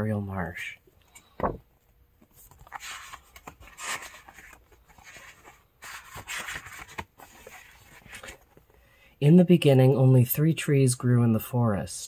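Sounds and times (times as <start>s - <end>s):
paper book rustling: 2.2s - 8.8s.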